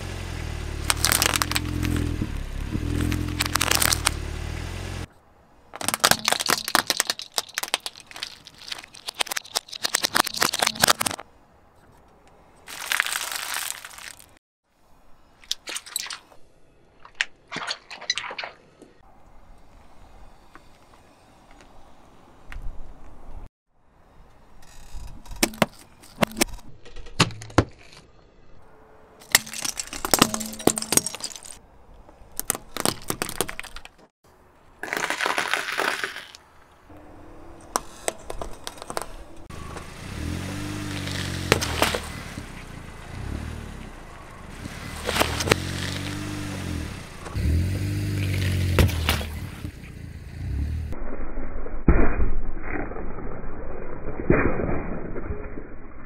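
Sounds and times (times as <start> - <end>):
car engine revving: 0.0 - 5.1, 39.4 - 51.0
balls cracking under tyre: 0.8 - 4.2, 32.0 - 34.1, 37.8 - 42.9, 43.8 - 49.9.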